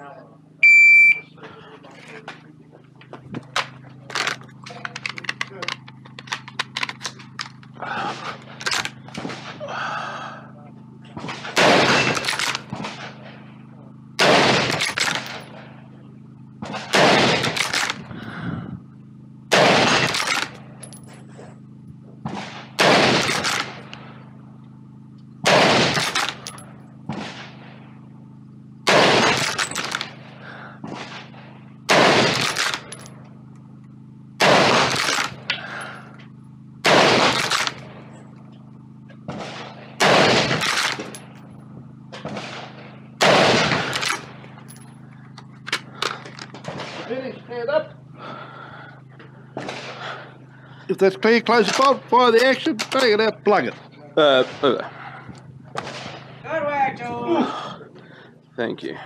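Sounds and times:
rifle bolt clicks and knocks: 0:03.5 - 0:07.8, 0:08.6 - 0:09.2
rifle shots: 0:11.2 - 0:13.4, 0:14.2 - 0:15.6, 0:16.6 - 0:18.0, 0:19.5 - 0:20.6, 0:22.2 - 0:23.9, 0:25.4 - 0:27.8, 0:28.8 - 0:33.0, 0:34.4 - 0:35.5, 0:36.8 - 0:38.0, 0:39.2 - 0:41.3, 0:42.2 - 0:44.6, 0:46.6 - 0:47.1, 0:49.6 - 0:50.2, 0:55.7 - 0:56.4.

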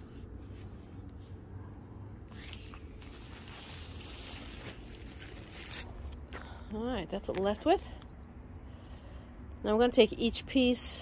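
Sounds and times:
steady low rumble: 0:00.0 - 0:11.0
large paper sheet rustling: 0:02.3 - 0:05.9.

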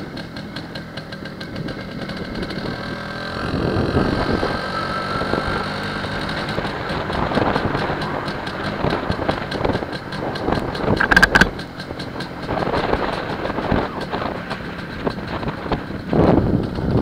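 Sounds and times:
two-stroke motorcycle engine: 0:00.0 - 0:17.0
loud rattle and squeak: 0:11.0 - 0:11.5.

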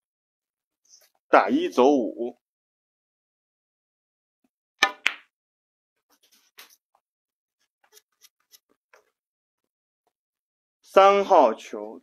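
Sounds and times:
cue striking ball: 0:04.8 - 0:05.3.

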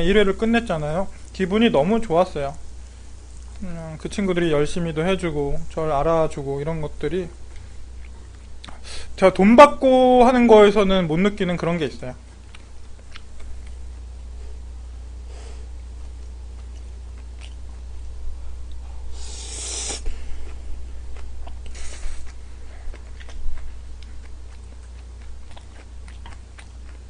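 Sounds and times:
low hum: 0:00.0 - 0:27.0
man chewing noodles: 0:07.5 - 0:08.8, 0:12.2 - 0:14.7, 0:15.6 - 0:27.0
noodle slurping: 0:19.2 - 0:20.1.

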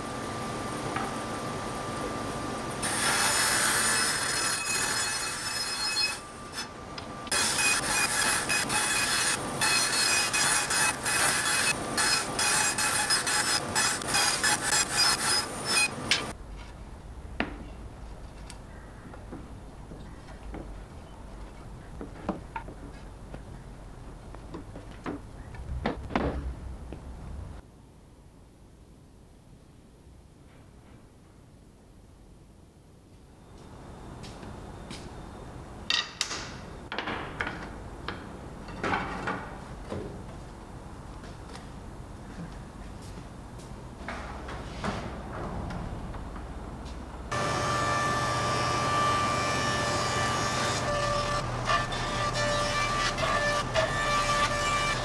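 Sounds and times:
bandsaw cutting wood: 0:02.8 - 0:06.7, 0:07.3 - 0:16.3, 0:47.3 - 0:55.0
low hum: 0:16.3 - 0:27.6
wooden boards knocking and scraping: 0:24.4 - 0:26.6.

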